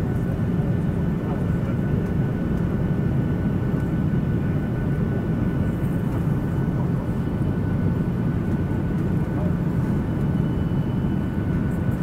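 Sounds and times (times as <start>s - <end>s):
jet engine cabin rumble: 0.0s - 12.0s
faint steady high tone: 10.0s - 11.4s.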